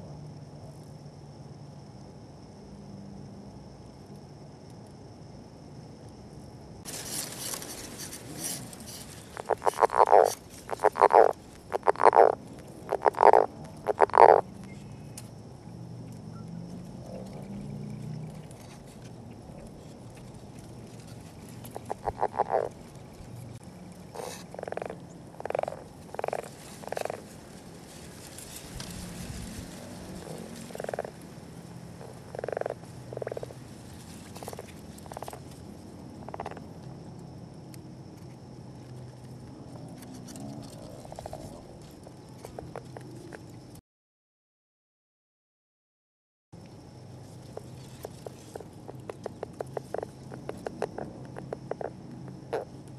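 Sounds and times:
frogs grunting: 0:07.8 - 0:15.0, 0:16.3 - 0:20.1, 0:21.1 - 0:27.6, 0:29.0 - 0:36.8, 0:39.8 - 0:43.4, 0:47.5 - 0:52.9
frog rattling snore call: 0:08.1 - 0:14.5, 0:21.6 - 0:22.8, 0:24.1 - 0:27.3, 0:29.8 - 0:31.2, 0:32.0 - 0:33.6, 0:34.4 - 0:35.5, 0:36.2 - 0:36.7, 0:47.9 - 0:52.8.

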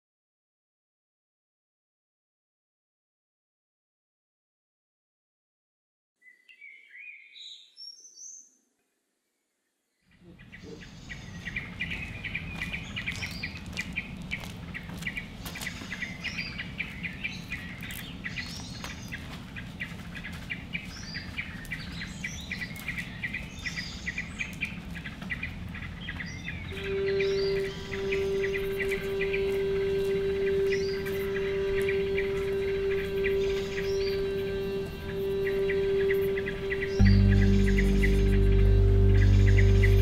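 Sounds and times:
small birds chirping: 0:06.2 - 0:08.7, 0:09.9 - 0:40.0
low background rumble: 0:31.2 - 0:40.0.

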